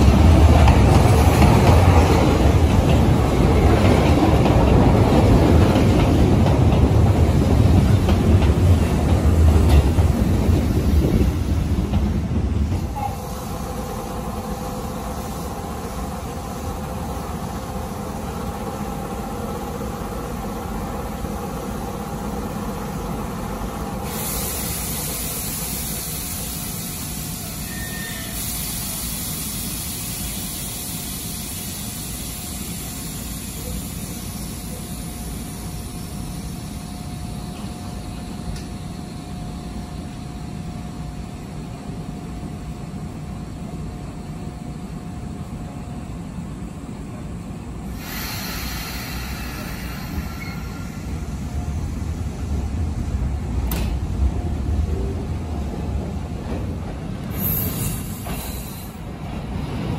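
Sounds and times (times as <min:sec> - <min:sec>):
electric train humming: 0:00.0 - 0:59.9
steady high hiss: 0:41.5 - 0:55.4.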